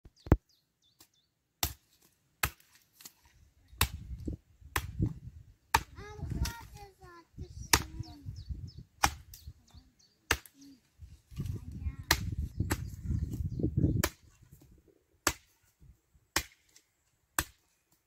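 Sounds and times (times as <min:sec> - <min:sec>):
axe chopping kindling on wood: 0:01.6 - 0:03.1, 0:03.8 - 0:04.0, 0:04.7 - 0:05.1, 0:05.7 - 0:06.5, 0:09.0 - 0:09.3, 0:10.3 - 0:10.5, 0:12.0 - 0:13.0, 0:14.0 - 0:14.4, 0:15.2 - 0:15.6, 0:16.3 - 0:16.8, 0:17.4 - 0:17.7.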